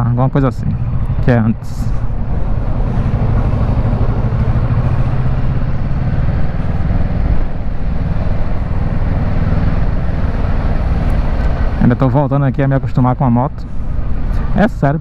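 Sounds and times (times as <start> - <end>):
motorcycle engine running: 0.8 - 11.8.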